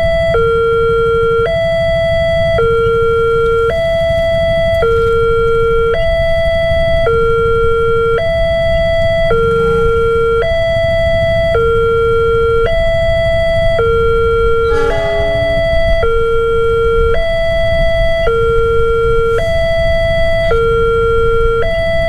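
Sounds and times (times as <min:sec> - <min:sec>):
level crossing alarm two tones: 0:13.8 - 0:22.0.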